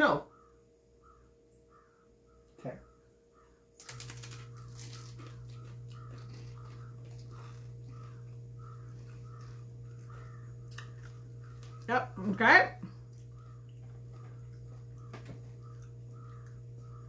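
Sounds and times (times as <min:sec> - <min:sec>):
steady low hum: 0:00.0 - 0:17.0
people chewing crackers: 0:03.8 - 0:11.9, 0:12.8 - 0:17.0.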